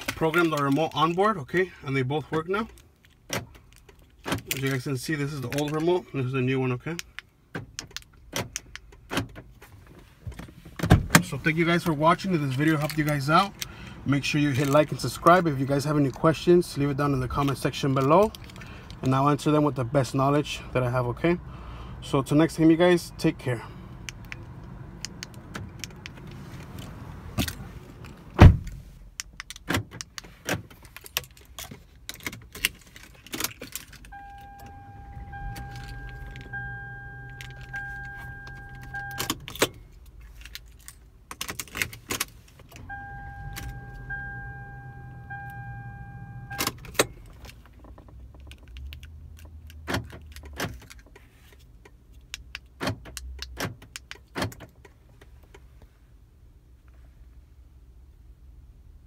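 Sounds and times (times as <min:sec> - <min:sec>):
pulsing electronic warning chime: 0:34.2 - 0:39.2, 0:42.9 - 0:46.6
keys jangling and clicking: 0:37.3 - 0:42.3.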